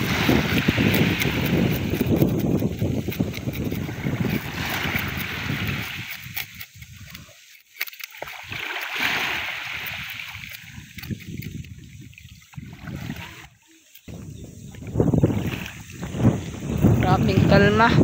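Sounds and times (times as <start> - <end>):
wind rumbling on microphone: 0.0 - 7.5, 8.4 - 18.0
knife scaling fish: 0.0 - 12.0
waves washing over pebbles: 0.0 - 13.6.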